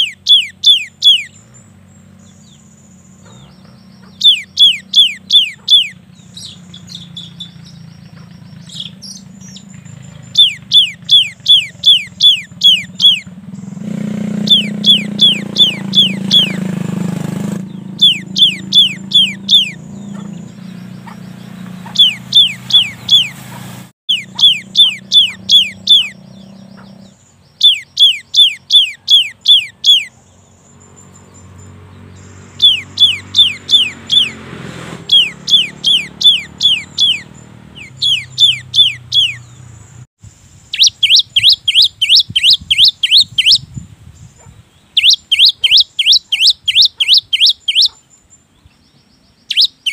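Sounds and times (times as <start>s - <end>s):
bird singing whistled notes: 0.0s - 23.4s, 24.1s - 49.9s.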